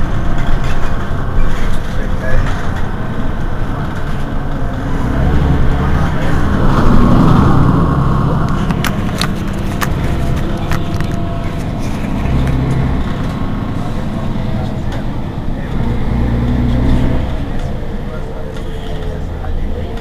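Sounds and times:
bus engine idling: 0.0 - 20.0.

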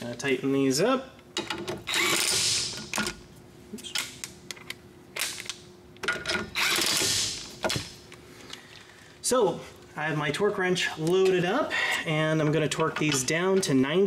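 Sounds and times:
impact wrench hammering: 1.4 - 3.0.

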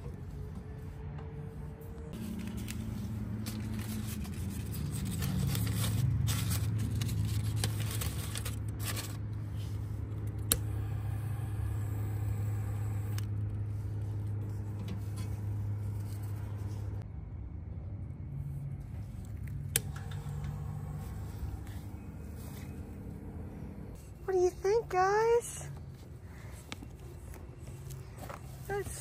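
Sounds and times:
low hum: 0.0 - 25.0
paper and cardboard rustling: 2.1 - 9.9.

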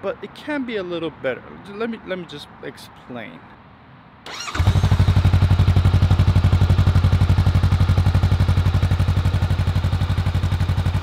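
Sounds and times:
motorcycle engine idling: 4.3 - 11.0.

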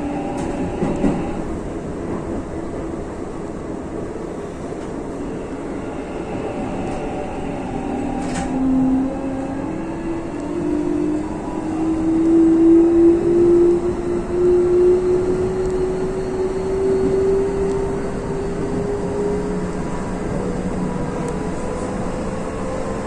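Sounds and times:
train running on track: 0.0 - 23.0
train motor whine: 5.2 - 22.9.

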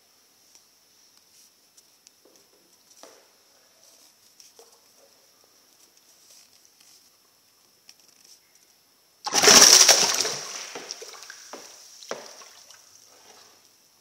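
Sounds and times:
fish splashing in water: 9.3 - 13.4.

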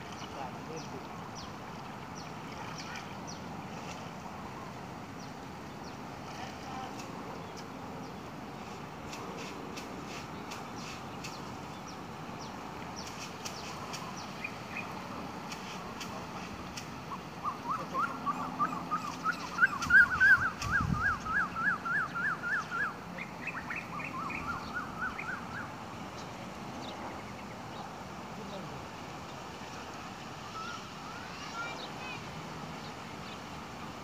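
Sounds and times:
bird calling: 16.9 - 28.7, 30.4 - 32.2.

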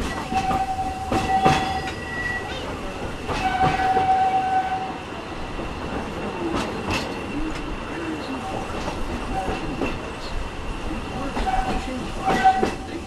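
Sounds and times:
train cars rumbling and rattling: 0.0 - 13.0
wheels clicking over rail joints: 11.0 - 13.0.

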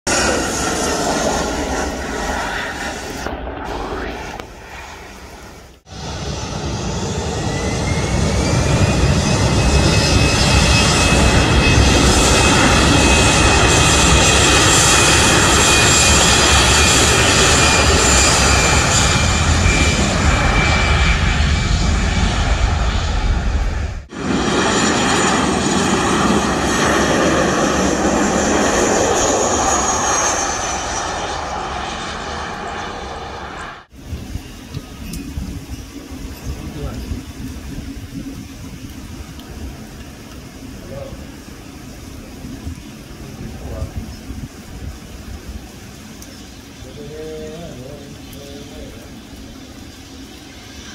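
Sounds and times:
airliner engines passing: 0.0 - 50.9.

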